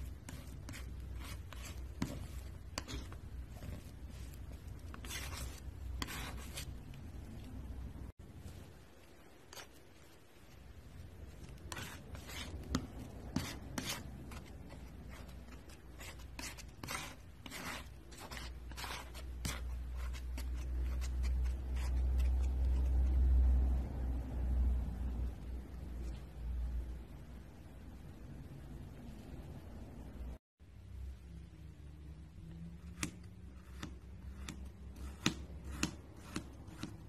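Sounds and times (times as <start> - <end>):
palette knife scraping paint: 0.0 - 7.5, 11.2 - 23.2, 32.8 - 37.0.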